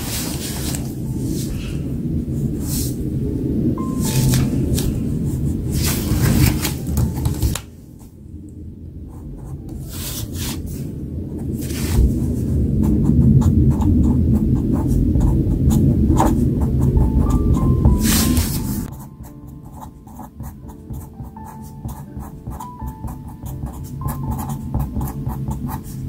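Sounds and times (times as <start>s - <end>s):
background music: 0.0s - 7.7s, 14.7s - 26.0s
pen scratching on paper: 9.1s - 10.7s, 11.6s - 26.0s.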